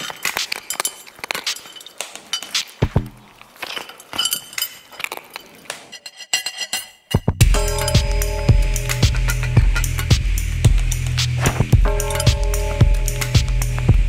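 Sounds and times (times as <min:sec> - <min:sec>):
light clinks and ticks: 0:00.0 - 0:02.8.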